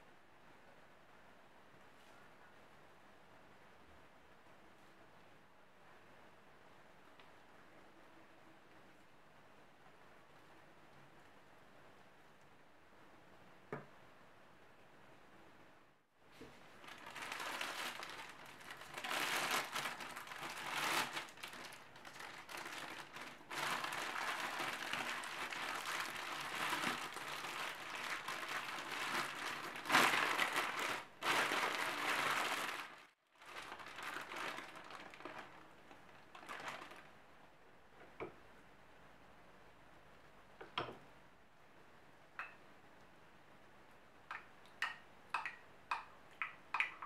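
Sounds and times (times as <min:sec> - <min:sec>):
plastic bag crinkling: 0:16.7 - 0:37.2.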